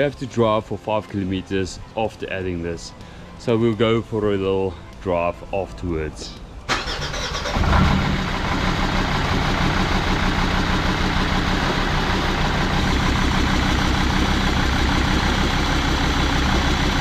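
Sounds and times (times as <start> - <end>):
diesel engine idling: 6.7 - 17.0.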